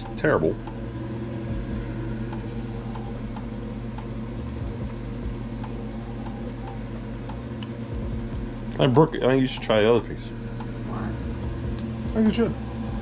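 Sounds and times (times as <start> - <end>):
electrical equipment hum: 0.0 - 13.0
faint ticks: 0.6 - 8.2.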